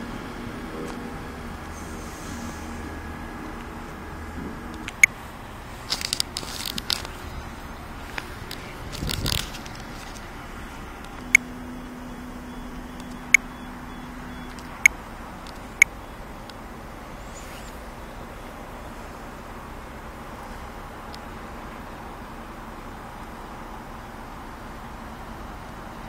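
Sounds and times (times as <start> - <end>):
crackling handling noise: 4.7 - 11.4
rustling: 5.7 - 11.3.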